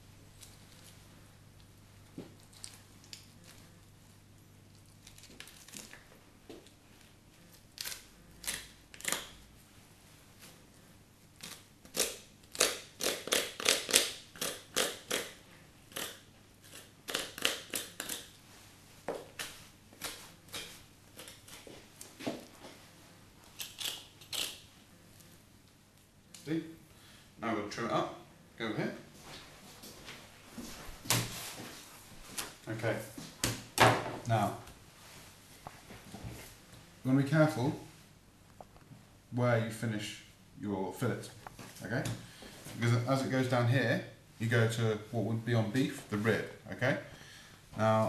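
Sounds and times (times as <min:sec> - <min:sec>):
knife scraping and tearing meat: 0:23.6 - 0:24.6.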